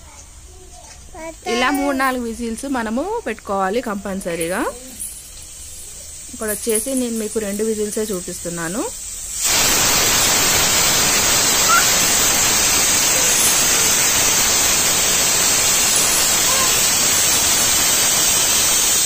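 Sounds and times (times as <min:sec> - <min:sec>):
pressure cooker whistle hissing: 0:05.4 - 0:19.0.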